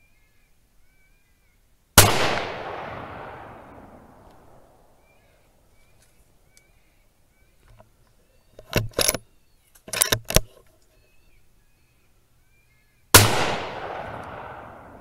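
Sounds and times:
rifle metallic clicks and clunks: 0:08.5 - 0:10.9.

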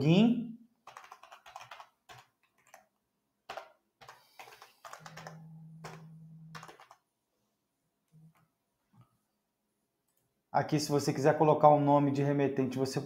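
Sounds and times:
keyboard typing: 0:00.8 - 0:02.9, 0:03.5 - 0:07.1
low steady hum: 0:05.2 - 0:06.6.

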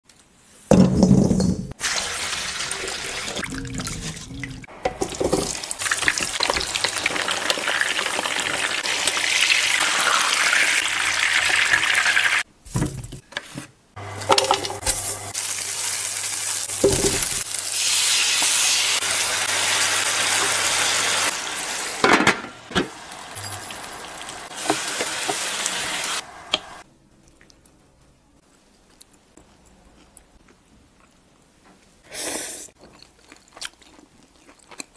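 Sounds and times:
oil sizzling in a pan: 0:01.8 - 0:03.4, 0:05.0 - 0:12.4, 0:14.2 - 0:26.8.

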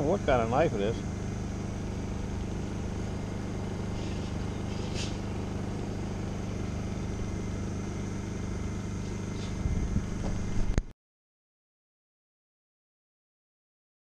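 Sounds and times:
generator engine humming: 0:00.0 - 0:10.9.

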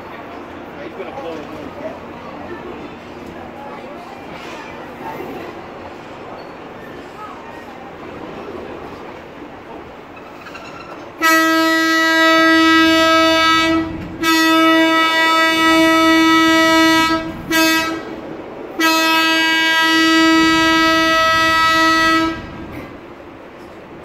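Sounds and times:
diesel locomotive horn: 0:11.2 - 0:22.9.

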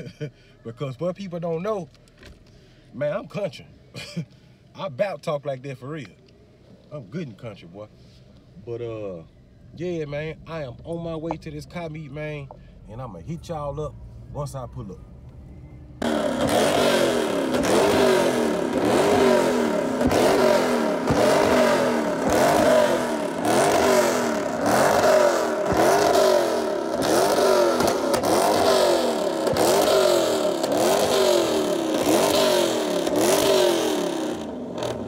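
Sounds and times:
car engine revving: 0:14.8 - 0:35.0.

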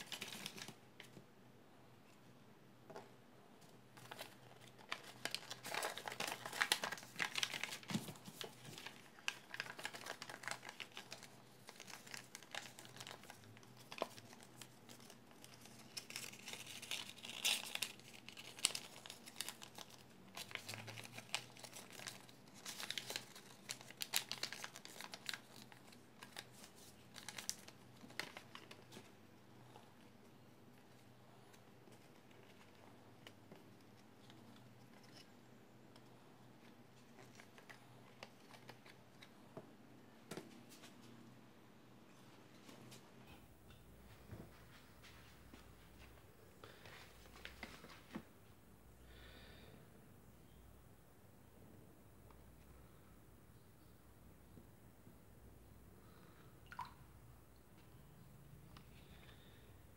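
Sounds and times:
paper crinkling and crackling: 0:00.0 - 0:01.2, 0:03.9 - 0:39.4, 0:46.6 - 0:48.3.

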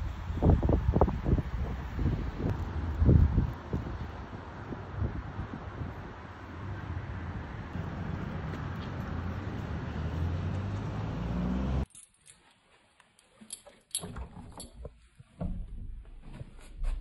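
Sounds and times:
wind on microphone: 0:00.0 - 0:06.6
street traffic: 0:00.0 - 0:11.9.

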